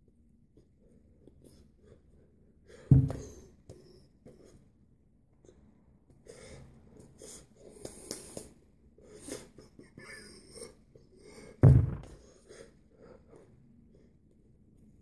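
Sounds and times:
hand thumping on table: 11.6s - 12.2s.

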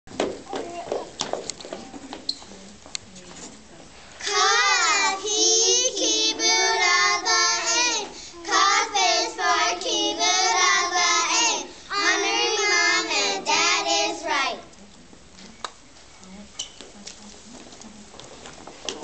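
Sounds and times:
children singing in unison: 4.2s - 14.6s.

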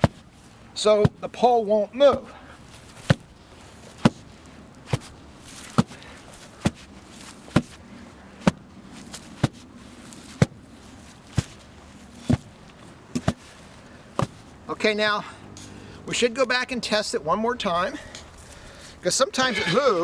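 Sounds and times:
sledgehammer thudding on dirt: 3.0s - 3.3s, 4.0s - 4.2s.

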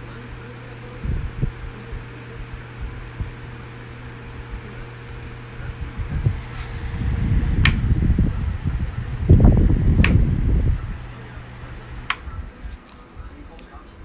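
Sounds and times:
fan motor hum: 0.0s - 14.0s
wind buffeting microphone: 1.0s - 3.4s, 5.6s - 11.6s.

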